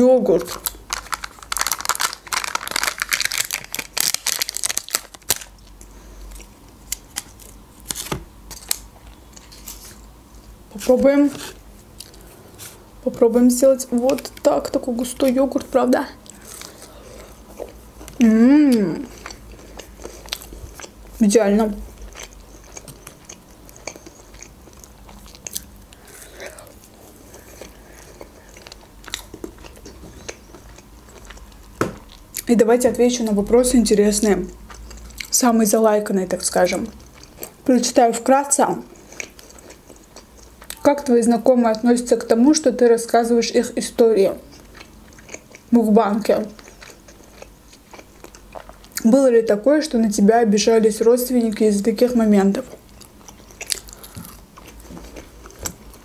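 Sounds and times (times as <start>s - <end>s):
pancake being chewed: 19.0s - 21.2s, 21.8s - 32.2s, 38.9s - 40.8s, 44.5s - 45.7s, 46.5s - 49.0s, 52.8s - 56.0s.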